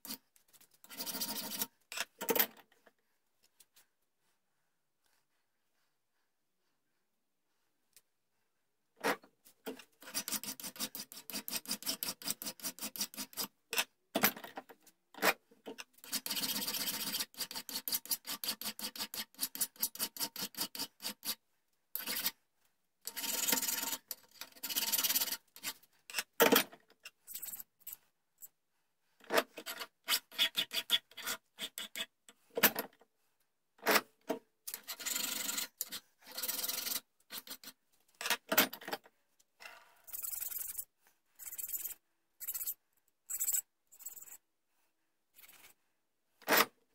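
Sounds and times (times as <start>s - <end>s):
hand file rasping on brass: 0.9s - 1.7s, 10.0s - 13.5s, 16.0s - 21.4s, 29.6s - 32.1s.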